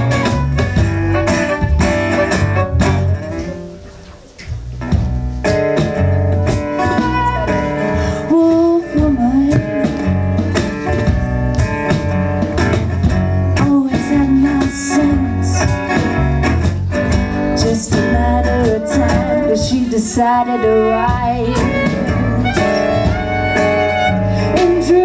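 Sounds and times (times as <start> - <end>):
electric bass: 0.0 - 3.8, 4.5 - 25.0
strummed acoustic guitar: 4.8 - 25.0
bowed violin melody: 18.4 - 25.0.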